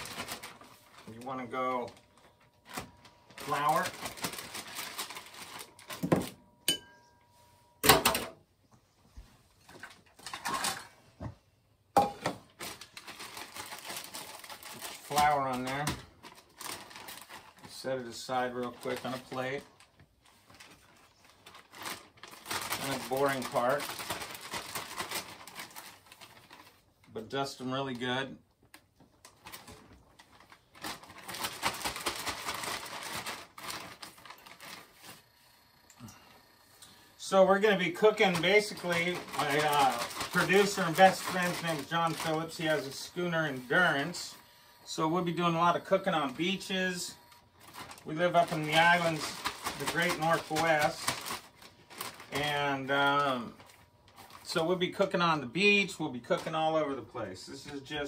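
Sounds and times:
plastic bag rustling: 0.0 - 6.5, 12.0 - 28.0, 28.9 - 35.3, 37.2 - 44.3, 44.9 - 58.0
ringing clink: 6.6 - 7.1.

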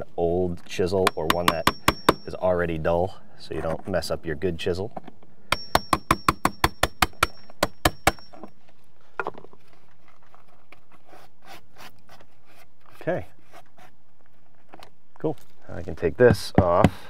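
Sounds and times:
chisel scraping wood: 10.4 - 14.0.

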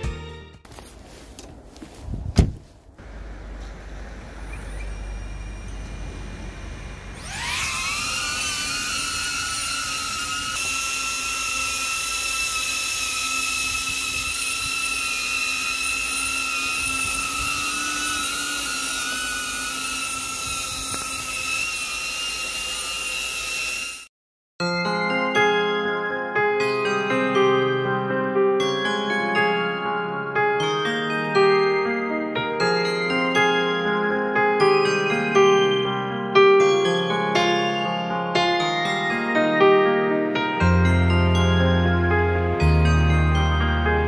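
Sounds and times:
sharp thump: 2.3 - 2.7
drone propellers whining: 3.1 - 24.1.

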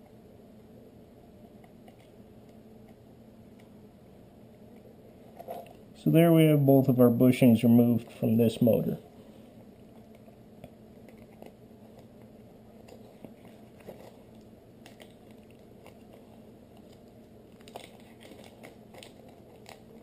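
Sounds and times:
low steady hum: 0.0 - 20.0
plastic bag crinkling: 12.8 - 20.0.

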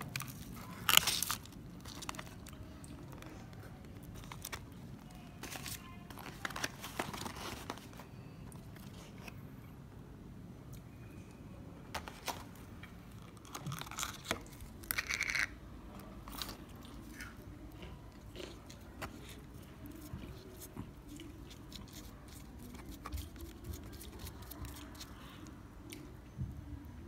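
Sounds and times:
fries crunching in cardboard box: 0.0 - 2.6, 13.3 - 15.5.

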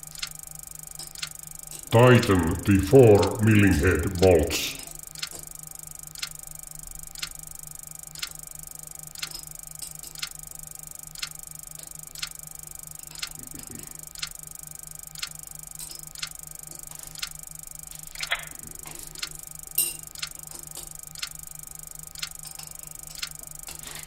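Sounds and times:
steady low hum: 0.0 - 24.0
clock ticking: 2.0 - 5.3.

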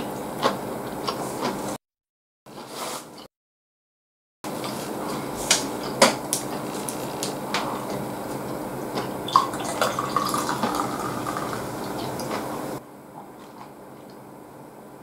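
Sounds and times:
drink pouring into a glass: 9.3 - 11.9.

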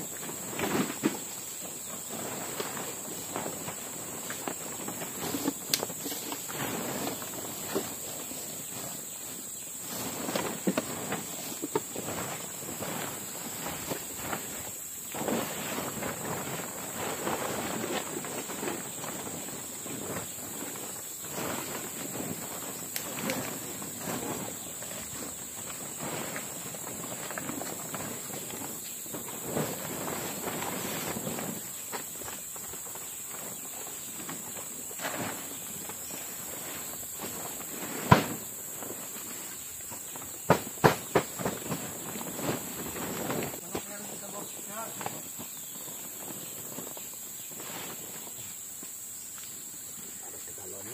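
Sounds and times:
insects droning: 0.0 - 50.9
rustling: 0.0 - 50.9
footsteps: 0.1 - 50.2.

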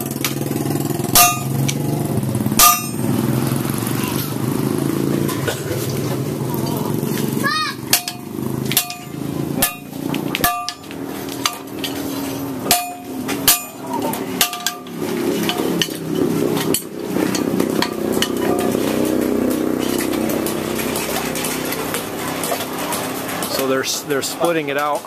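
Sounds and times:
hammer striking blade on anvil: 1.1 - 1.9, 2.6 - 3.2, 7.9 - 16.0.

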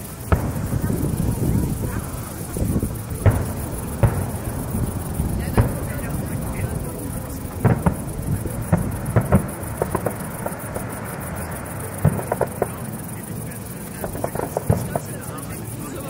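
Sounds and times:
fireworks bangs and crackling: 0.0 - 16.0
steady low rumble: 0.0 - 16.0.

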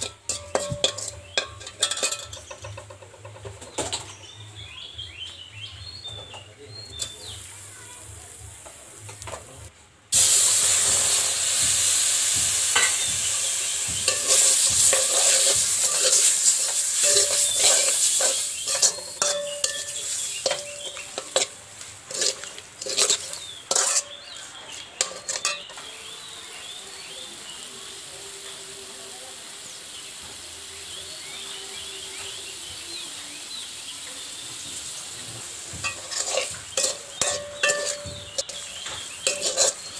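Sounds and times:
chicken sizzling in oil: 0.0 - 4.1, 6.9 - 9.4, 10.1 - 39.9
metal spatula scraping pan: 0.0 - 4.2, 14.0 - 24.4, 25.0 - 25.8, 35.8 - 39.9.

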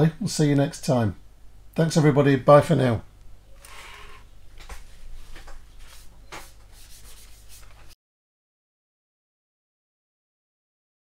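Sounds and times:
small tool rubbing on plastic: 3.6 - 4.3, 5.8 - 7.9.

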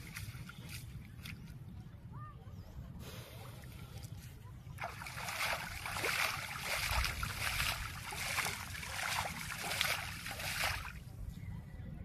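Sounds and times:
water splashing and sloshing: 0.0 - 1.7, 3.4 - 11.2.

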